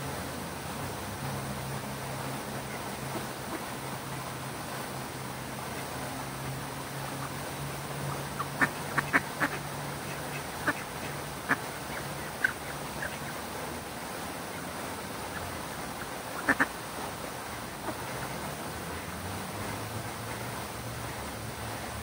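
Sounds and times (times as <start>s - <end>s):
fountain water rushing: 0.0s - 22.0s
ducks quacking: 8.1s - 13.4s, 15.3s - 16.8s.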